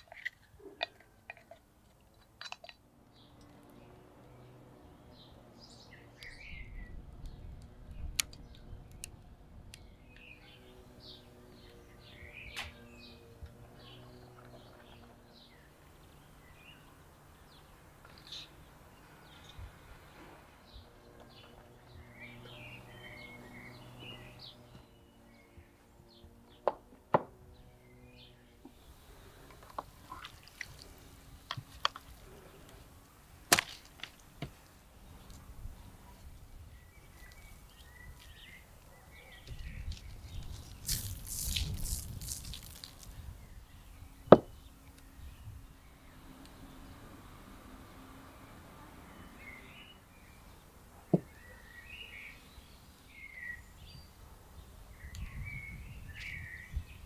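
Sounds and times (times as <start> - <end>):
small birds chirping: 0.0 - 57.0
firewood crackling and popping: 39.9 - 43.2.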